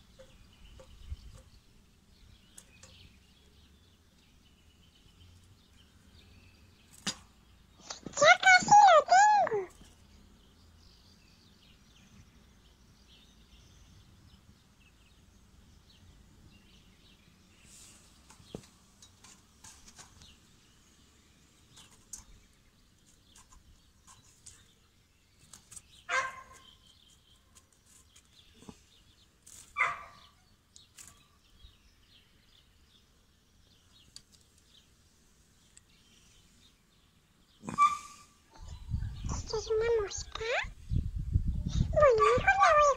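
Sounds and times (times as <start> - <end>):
faint scattered clicks: 2.4 - 3.2, 21.7 - 24.7, 34.0 - 34.8.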